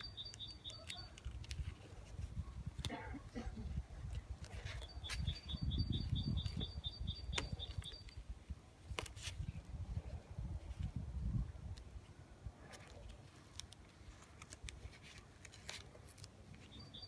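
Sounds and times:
bird chirping: 0.0 - 1.4, 4.6 - 8.3, 16.6 - 17.0
hands pressing tape rustling: 0.0 - 3.1, 8.8 - 9.7, 11.7 - 16.8.

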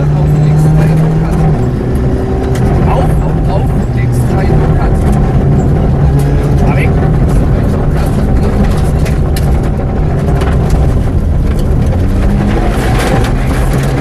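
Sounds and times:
car engine running at speed: 0.0 - 14.0
tyre and road noise: 0.0 - 14.0.

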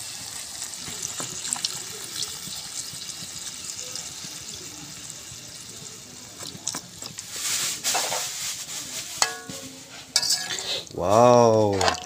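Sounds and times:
liquid pouring into a wok: 0.0 - 11.0
metal ladle stirring and clinking: 9.1 - 11.0, 11.7 - 12.0.

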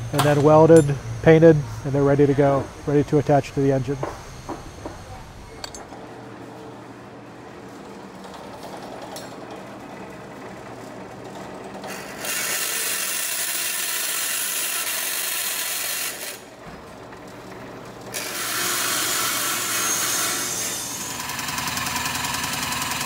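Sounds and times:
band saw motor hum: 0.0 - 5.8, 11.6 - 16.6, 17.4 - 23.0
saw blade cutting metal hiss: 18.2 - 21.3.

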